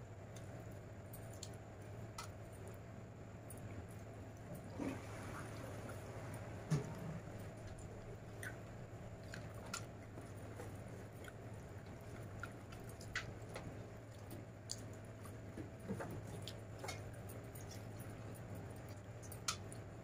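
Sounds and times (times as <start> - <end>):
steady low hum: 0.0 - 20.0
soft close chewing: 3.5 - 20.0
mouth clicks and smacks: 8.3 - 9.9.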